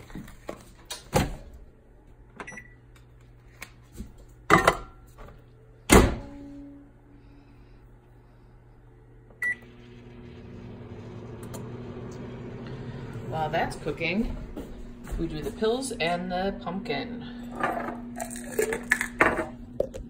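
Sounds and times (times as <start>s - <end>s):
microwave oven humming: 0.0s - 20.0s.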